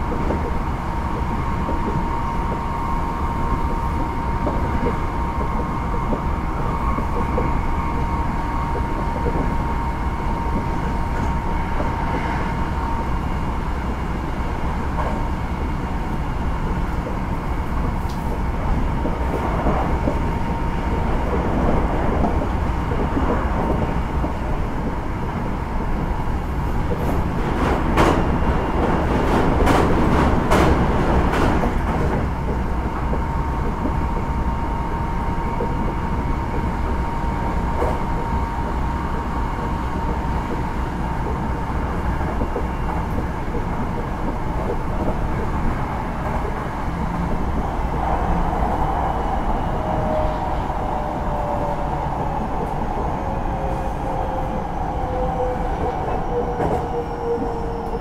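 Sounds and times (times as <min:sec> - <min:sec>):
electric train rumble and whine: 0:00.0 - 0:58.0.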